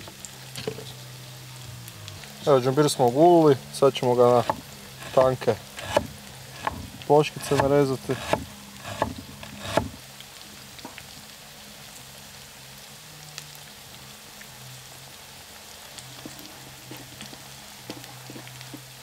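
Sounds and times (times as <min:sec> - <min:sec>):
chicken sizzling in oil: 0:00.0 - 0:19.0.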